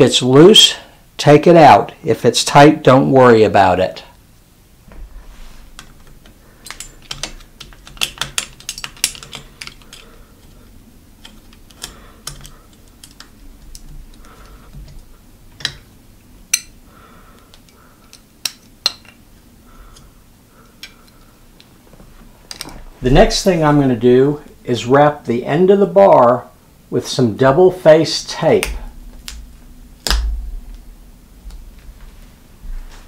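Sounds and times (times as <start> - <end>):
screwdriver metal clicks: 11.2 - 15.0.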